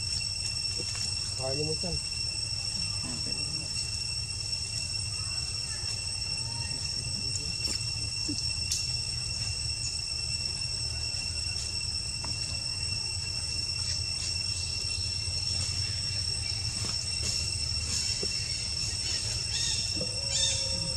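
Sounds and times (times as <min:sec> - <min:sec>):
high-pitched insect chorus: 0:00.0 - 0:20.9.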